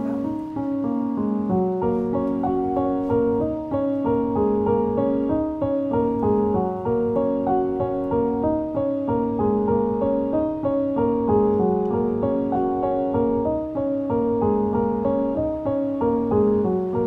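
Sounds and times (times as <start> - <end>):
gentle piano melody: 0.0 - 17.0.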